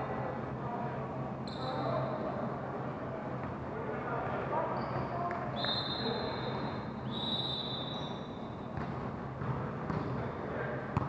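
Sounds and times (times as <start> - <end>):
gym hall noise: 0.0 - 11.0
high whistle blast: 5.6 - 8.2.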